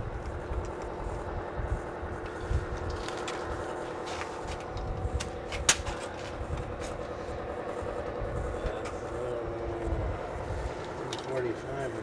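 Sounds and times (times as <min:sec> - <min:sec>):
low wind rumble: 0:00.0 - 0:12.0
steady machine hum: 0:00.0 - 0:12.0
small ticks: 0:00.2 - 0:01.0.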